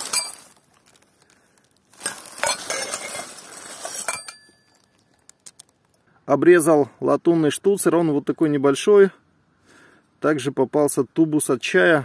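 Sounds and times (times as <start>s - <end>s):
glass cups clinking: 0.0s - 0.5s, 2.0s - 4.8s
plastic bag rustling: 0.0s - 5.6s.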